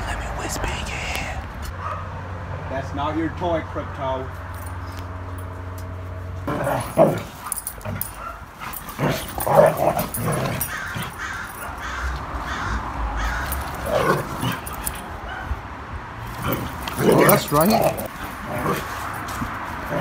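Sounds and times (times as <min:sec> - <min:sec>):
dogs barking while play-fighting: 0:01.7 - 0:02.2, 0:06.4 - 0:20.0.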